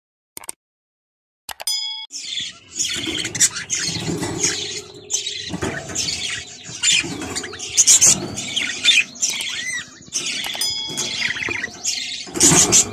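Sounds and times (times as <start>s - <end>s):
clicks: 1.5s - 1.7s, 3.9s - 12.9s
short bell ding: 1.7s - 2.1s
budgerigars chirping: 2.1s - 12.9s.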